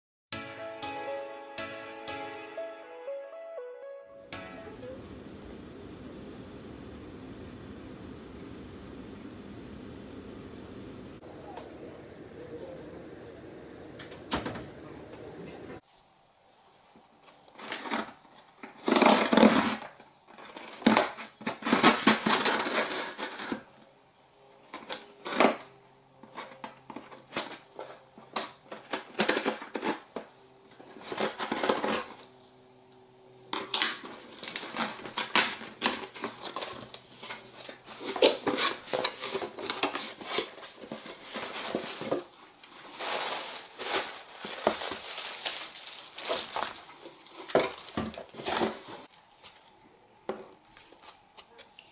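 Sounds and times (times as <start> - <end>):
cardboard box being unpacked: 17.4 - 23.8, 24.7 - 32.3, 33.5 - 49.7.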